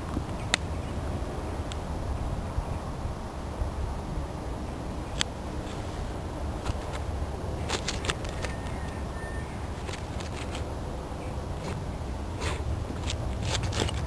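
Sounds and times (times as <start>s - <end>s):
wind rumble on microphone: 0.0s - 14.0s
dog digging in sandy soil: 11.5s - 14.0s
dog sniffing: 12.4s - 12.7s.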